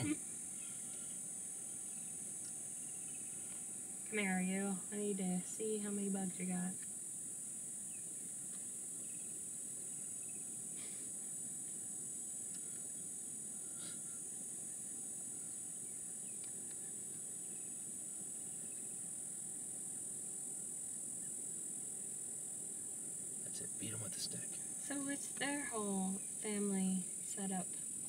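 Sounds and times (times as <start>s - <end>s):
insects chorus: 0.0s - 28.0s.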